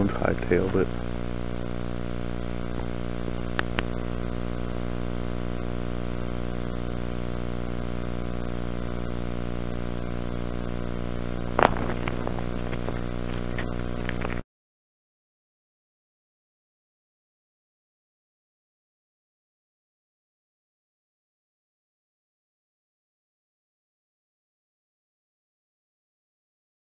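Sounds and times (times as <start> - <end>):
steady hum with overtones: 0.0 - 14.4.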